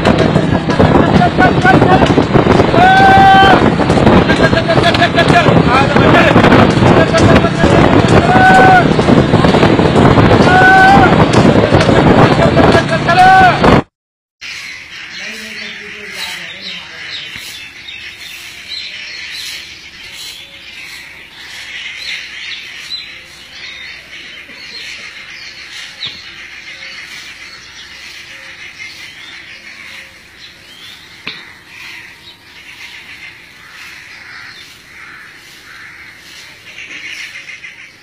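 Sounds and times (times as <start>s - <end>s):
birds chirping chorus: 14.4s - 38.0s.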